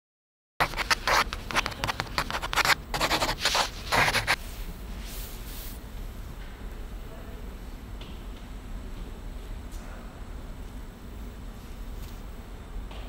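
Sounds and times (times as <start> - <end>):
scratching rubbing strokes: 0.6 - 5.8.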